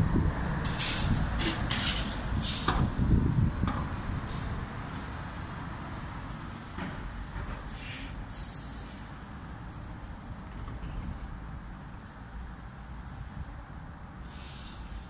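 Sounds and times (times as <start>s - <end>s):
rumble of passing vehicles: 0.0s - 15.0s
short sharp hiss: 7.7s - 9.1s, 14.2s - 15.0s.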